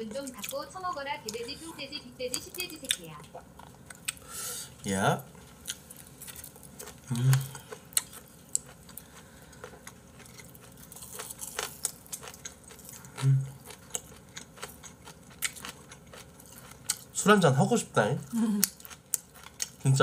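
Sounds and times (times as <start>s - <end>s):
chewing: 0.1s - 0.6s, 2.3s - 4.3s, 5.3s - 17.2s, 18.2s - 20.0s
person humming: 7.1s - 7.6s, 13.2s - 13.5s, 18.3s - 18.6s.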